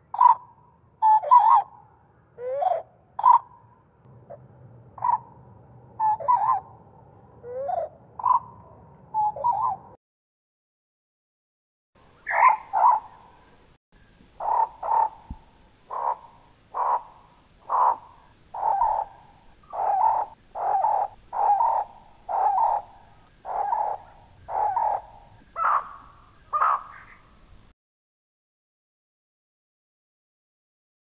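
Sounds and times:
slowed-down bird calls: 5.0s - 5.4s, 6.0s - 6.8s, 7.4s - 10.0s, 12.2s - 27.4s.

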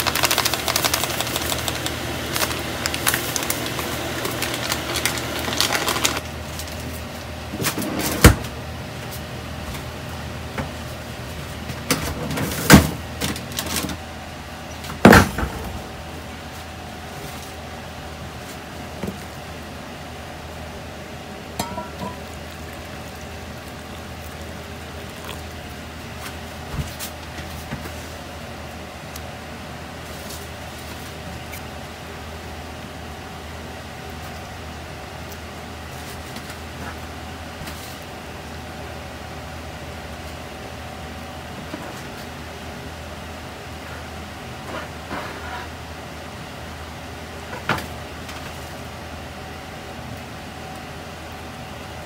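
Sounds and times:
saucepan boiling hard: 0.0s - 6.3s, 17.0s - 27.3s
steady low hum: 0.0s - 52.0s
pots knocking on steel counter: 21.6s - 22.2s
dishware clinking: 21.6s - 22.3s.

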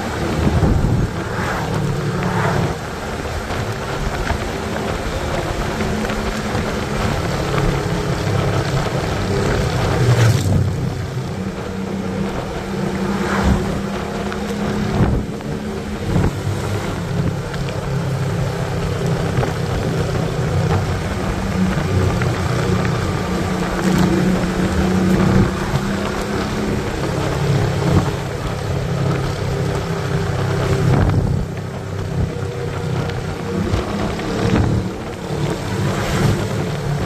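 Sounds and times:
motorcycle engine running: 0.0s - 37.0s
wind rushing over microphone: 0.0s - 37.0s
short whooshes: 0.6s - 2.8s.

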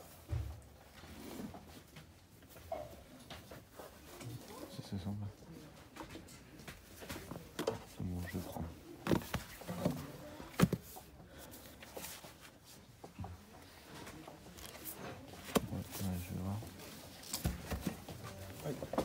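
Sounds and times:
books being shifted: 6.8s - 13.2s, 13.8s - 19.0s.

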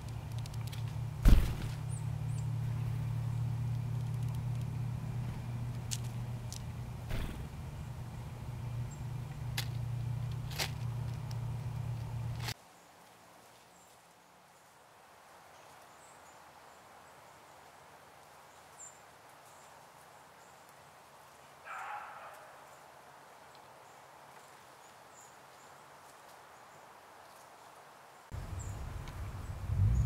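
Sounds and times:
squirrel rustling on stone: 9.2s - 14.2s.

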